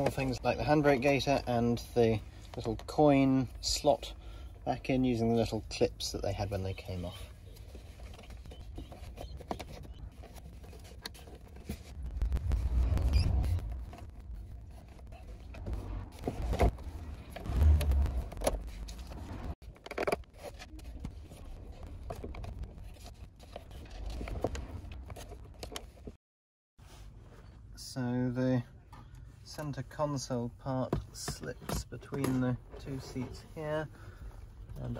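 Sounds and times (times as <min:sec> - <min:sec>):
heavy low thumps: 0:11.9 - 0:14.4.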